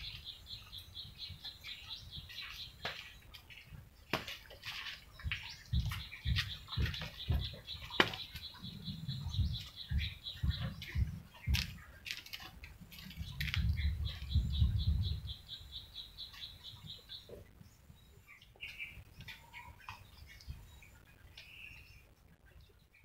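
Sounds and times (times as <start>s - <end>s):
bird chirping rapidly: 5.1s - 11.9s, 13.2s - 17.4s
low rumbles: 5.1s - 15.8s.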